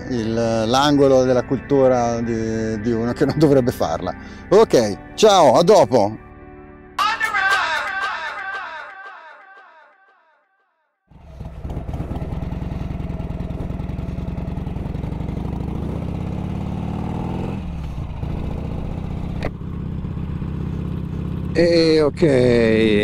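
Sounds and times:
motorcycle engine running: 11.1s - 23.0s.

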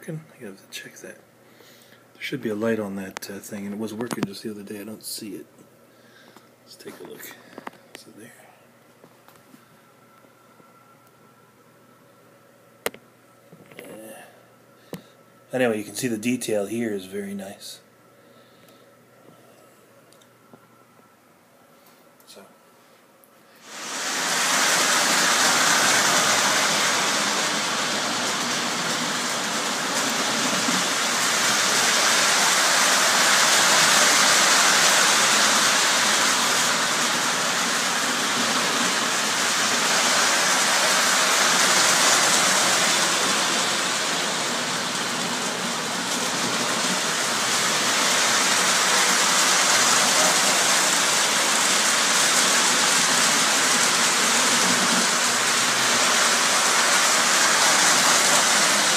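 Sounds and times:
model trains rolling: 23.6s - 58.9s.

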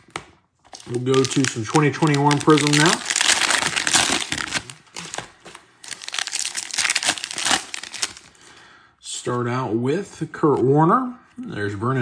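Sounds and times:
foil wrapper crinkling torn open: 0.7s - 8.3s.

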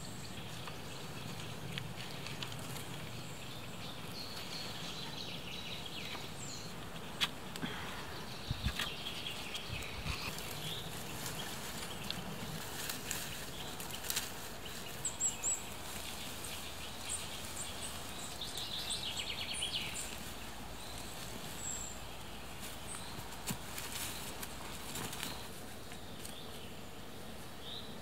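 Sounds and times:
bird calls: 0.0s - 26.8s
steady background hiss: 0.0s - 28.0s.

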